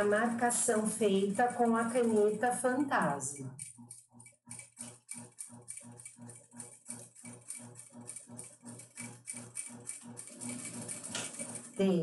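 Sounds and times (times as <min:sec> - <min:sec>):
sewing machine motor hum: 0:00.0 - 0:12.0
sewing machine stitch clicks: 0:03.6 - 0:11.8.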